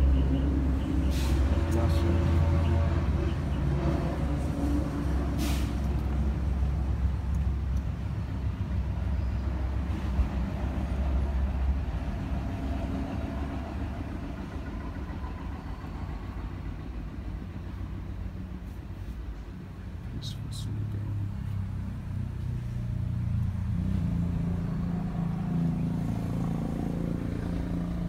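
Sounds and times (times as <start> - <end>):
vehicle engine rumble: 0.0 - 28.0
short hiss: 1.1 - 1.6, 5.4 - 5.9.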